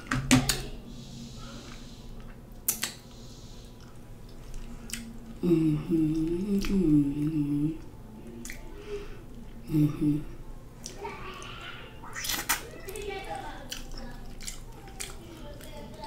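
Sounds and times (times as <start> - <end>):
woman humming: 5.4 - 8.0, 9.6 - 10.4.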